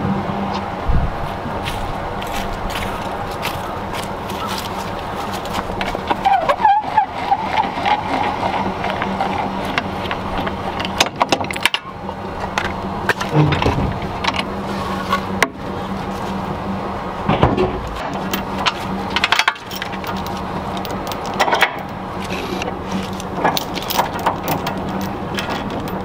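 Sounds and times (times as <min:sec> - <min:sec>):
steady low hum: 0:00.0 - 0:26.0
metal hitch hardware clicking: 0:07.5 - 0:14.5, 0:17.8 - 0:26.0.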